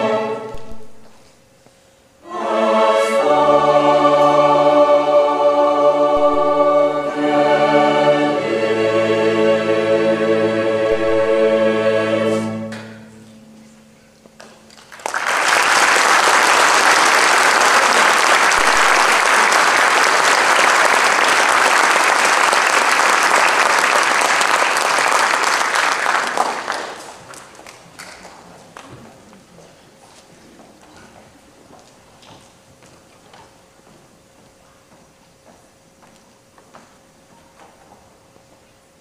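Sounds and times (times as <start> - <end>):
orchestra and choir chord: 0.0 - 1.2, 2.2 - 14.6, 18.0 - 21.6
audience applause: 14.7 - 28.4.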